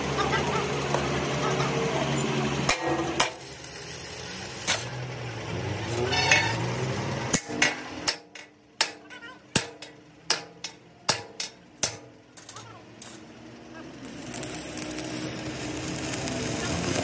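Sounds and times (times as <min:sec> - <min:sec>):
hammer striking metal: 0:02.7 - 0:03.4, 0:07.3 - 0:13.2
machine hum: 0:11.6 - 0:17.0.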